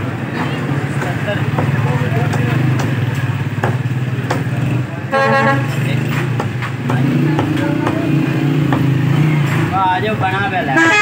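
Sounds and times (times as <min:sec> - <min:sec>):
street traffic: 0:00.0 - 0:11.0
cleaver chopping on wooden block: 0:03.6 - 0:04.5
vehicle horn toot: 0:05.1 - 0:05.8, 0:10.7 - 0:11.0.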